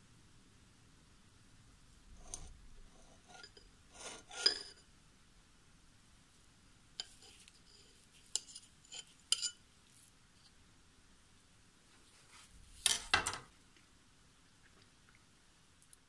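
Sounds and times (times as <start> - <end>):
cutlery clinking on saucer: 4.3 - 4.8, 8.3 - 9.6.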